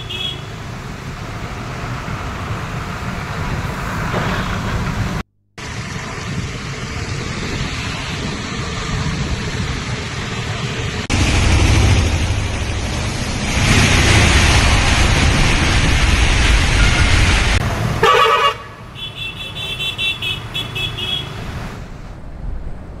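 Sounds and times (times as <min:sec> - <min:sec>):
vehicle horn toots: 0:00.0 - 0:00.6, 0:18.0 - 0:21.4
car engine: 0:00.0 - 0:18.8
traffic on flooded road: 0:00.0 - 0:23.0
car splashing through water: 0:05.6 - 0:18.1.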